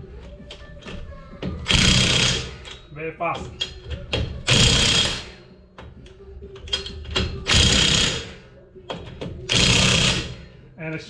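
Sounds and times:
impact wrench hammering: 1.6s - 2.8s, 4.1s - 5.3s, 6.6s - 10.4s.

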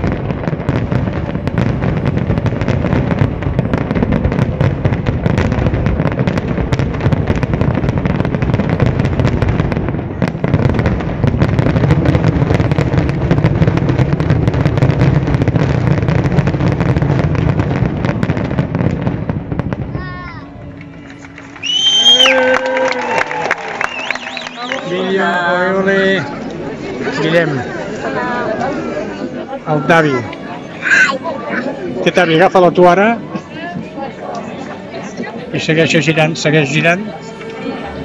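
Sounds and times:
fireworks bursting and crackling: 0.0s - 38.0s.

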